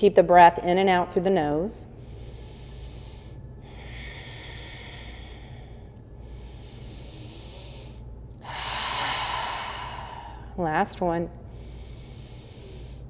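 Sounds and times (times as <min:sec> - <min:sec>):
woman breathing through nose: 0:02.0 - 0:10.6, 0:11.4 - 0:13.0.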